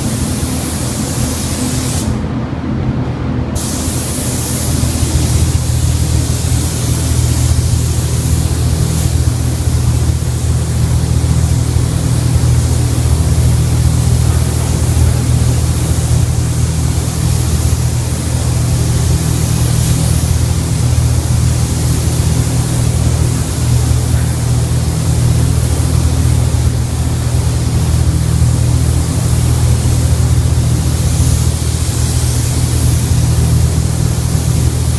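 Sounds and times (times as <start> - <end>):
spray gun hissing: 0.0 - 2.2, 3.6 - 34.9
steady low hum: 0.0 - 34.9.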